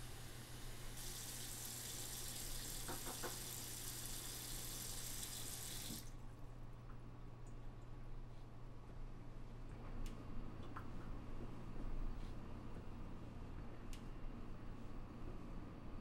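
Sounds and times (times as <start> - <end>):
tap water running into sink: 1.0 - 6.1.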